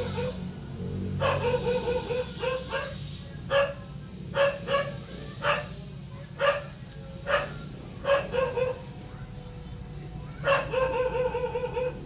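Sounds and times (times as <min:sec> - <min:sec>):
dog barking: 0:00.0 - 0:00.4, 0:01.2 - 0:05.8, 0:06.4 - 0:08.9, 0:10.4 - 0:12.0.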